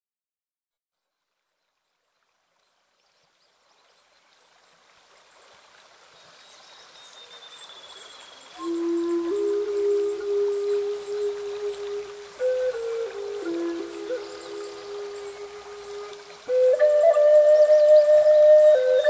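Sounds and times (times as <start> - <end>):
stream water ambience: 1.0 - 19.0
new-age music held notes: 8.6 - 19.0.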